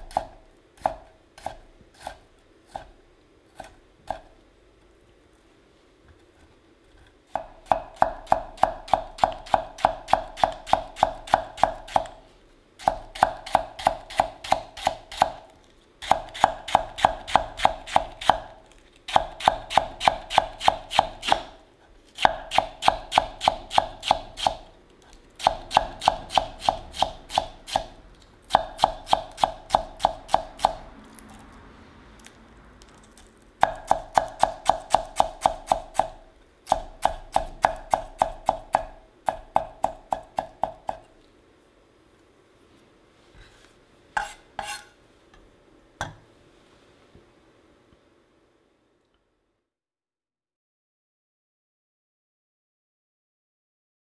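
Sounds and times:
knife chopping on wooden board: 0:00.0 - 0:02.9, 0:07.3 - 0:12.2, 0:16.0 - 0:18.5, 0:22.2 - 0:24.6, 0:28.5 - 0:30.8, 0:33.6 - 0:41.1, 0:44.2 - 0:44.9.

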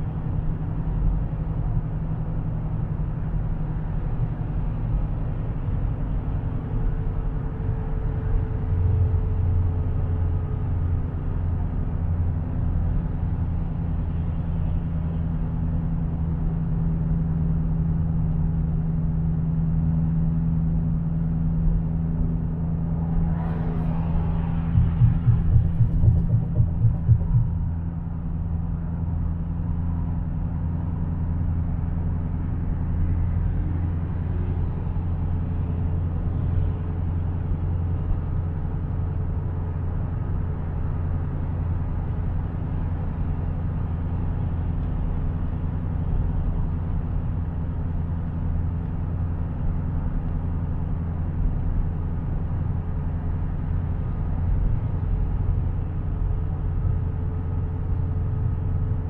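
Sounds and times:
car engine droning: 0:00.0 - 0:59.0
tyre and road noise: 0:22.3 - 0:28.3.

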